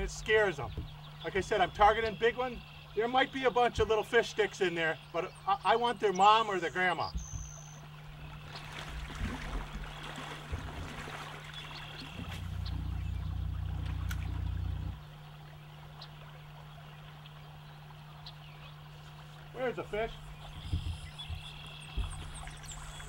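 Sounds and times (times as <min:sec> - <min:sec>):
steady low hum: 0:00.0 - 0:23.0
stream trickling: 0:00.0 - 0:23.0
low rumble: 0:12.2 - 0:15.1.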